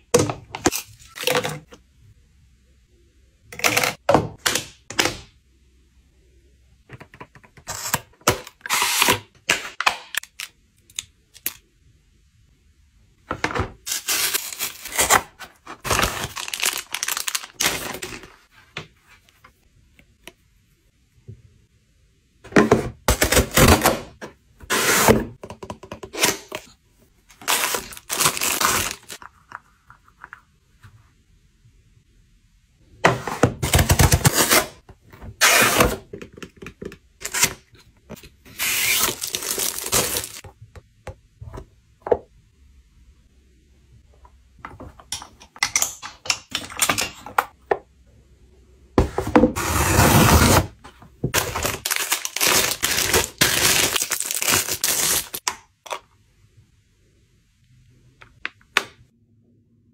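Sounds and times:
plastic bag rustling: 0:13.9 - 0:18.3, 0:51.4 - 0:55.4.

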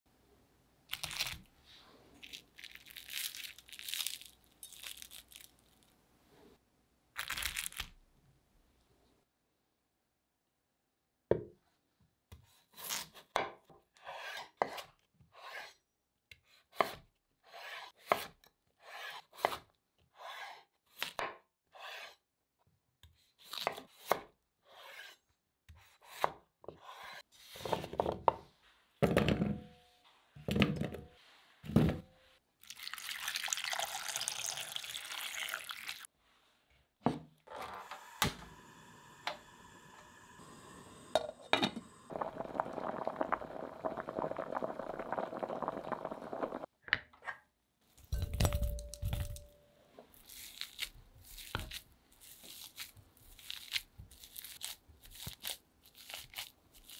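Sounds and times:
faint hiss: 0:37.9 - 0:42.2.

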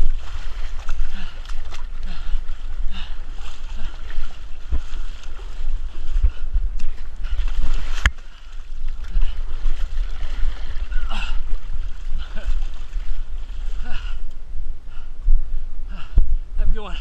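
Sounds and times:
water sloshing: 0:00.0 - 0:14.5
low muffled rumble: 0:00.0 - 0:17.0.

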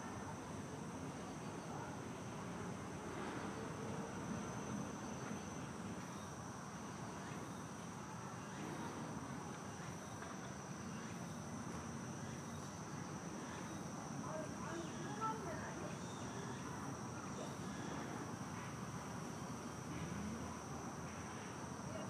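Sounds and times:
insects droning: 0:00.0 - 0:22.0
low background noise: 0:00.0 - 0:22.0.

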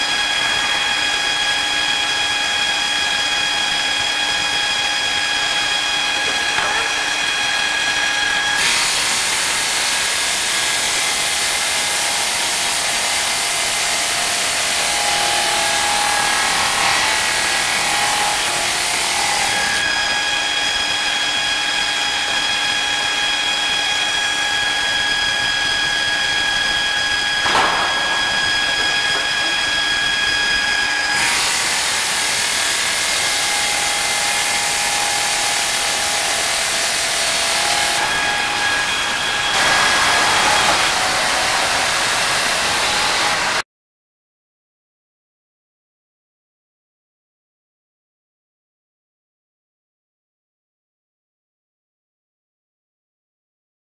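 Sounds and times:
stone saw hissing and whining: 0:00.0 - 0:43.6.

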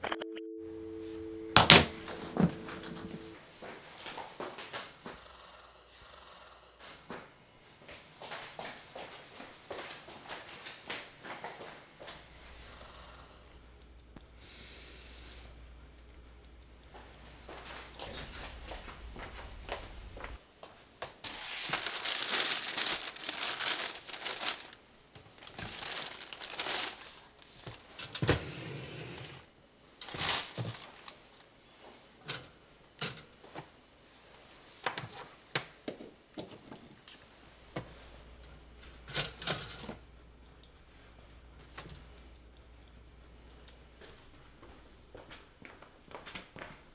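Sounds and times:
plastic packaging crinkling: 0:21.2 - 0:28.0, 0:30.0 - 0:31.4.

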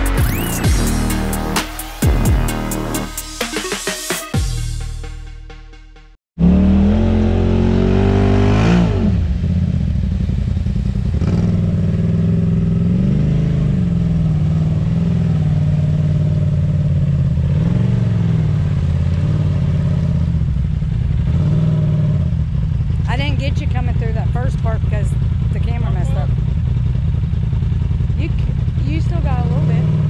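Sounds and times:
utility vehicle engine running: 0:09.1 - 0:30.0.

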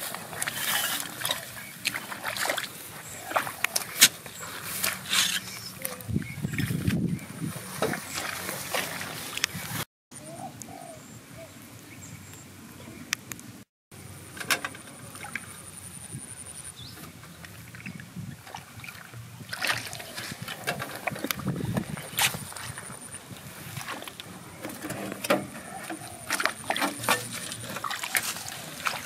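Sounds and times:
hoe rustling through wet grass: 0:00.0 - 0:09.9, 0:16.8 - 0:29.0.

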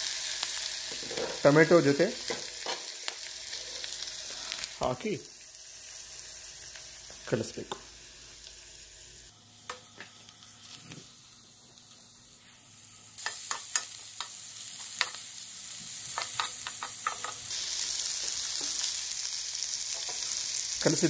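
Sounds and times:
vegetables sizzling in oil: 0:00.0 - 0:21.0
spoon scraping a pan: 0:00.9 - 0:01.5.

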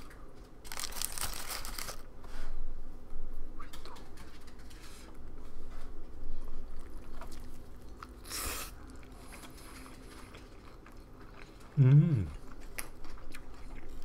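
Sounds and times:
crackles of handled wrapper: 0:00.6 - 0:02.1
quiet chewing: 0:03.6 - 0:14.0.

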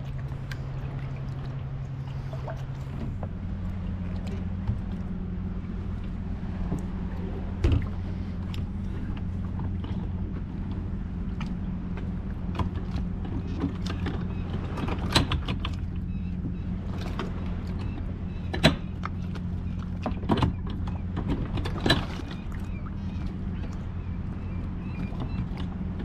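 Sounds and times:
boat engine hum: 0:00.0 - 0:26.0.

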